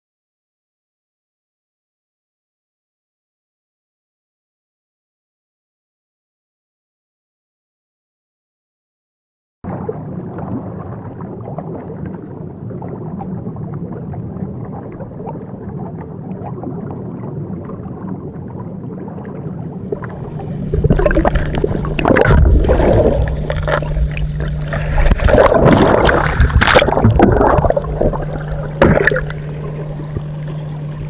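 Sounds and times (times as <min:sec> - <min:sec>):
muffled underwater water rush: 0:09.6 - 0:31.0
water splashing and bubbling: 0:09.6 - 0:31.0.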